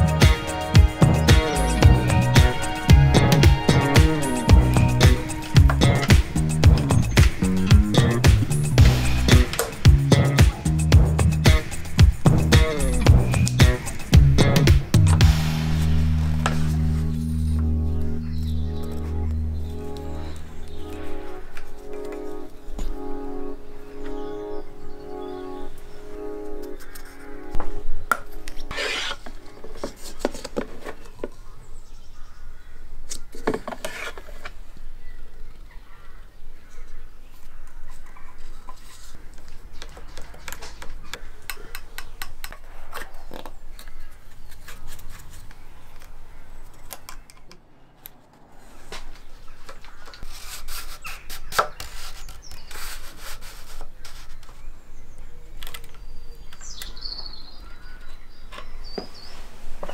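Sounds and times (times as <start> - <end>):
rubbing: 28.6 - 30.8, 50.2 - 54.6.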